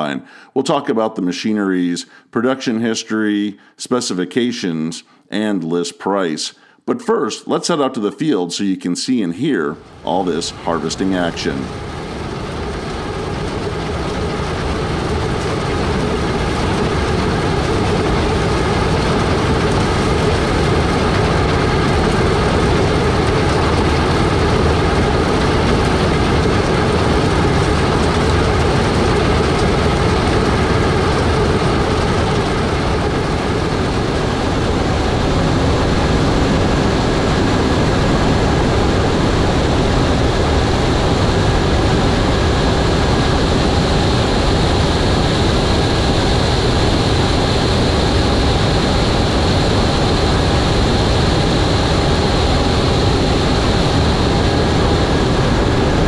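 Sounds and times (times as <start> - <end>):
combine harvester engine drone: 9.8 - 56.0.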